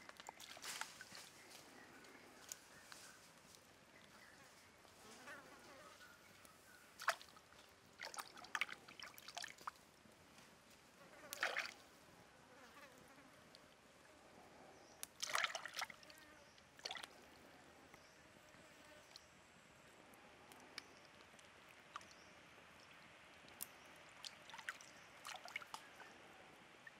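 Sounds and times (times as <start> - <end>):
hands splashing in water: 7.0 - 9.8, 11.3 - 11.8, 15.1 - 16.0, 16.8 - 17.1
water trickling: 7.0 - 9.8, 20.8 - 26.2.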